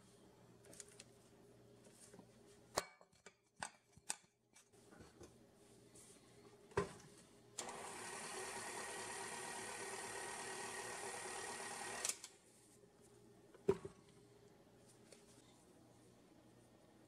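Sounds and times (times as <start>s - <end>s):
stand mixer motor running: 7.6s - 12.1s.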